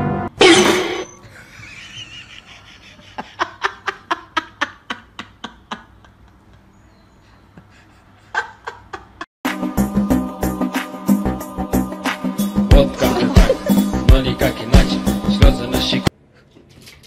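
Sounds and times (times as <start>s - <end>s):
person chuckling: 1.2s - 6.7s, 12.8s - 14.0s.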